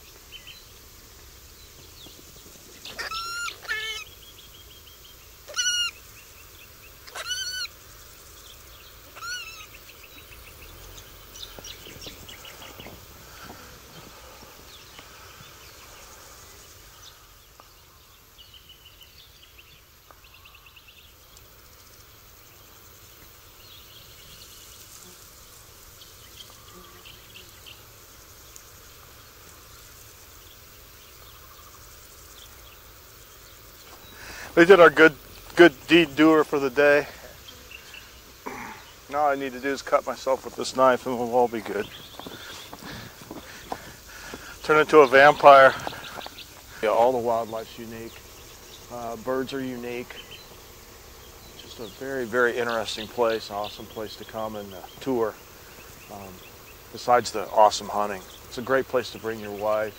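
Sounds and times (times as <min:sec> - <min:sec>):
fruit bat screeching: 0:02.8 - 0:04.2, 0:05.4 - 0:06.1, 0:07.0 - 0:07.8, 0:09.1 - 0:09.8
faint rustling: 0:09.8 - 0:17.8, 0:33.6 - 0:57.1.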